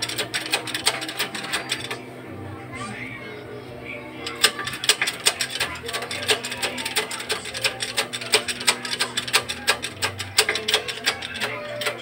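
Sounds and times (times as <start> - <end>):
metallic clicking and clacking: 0.0 - 2.0, 4.2 - 12.0.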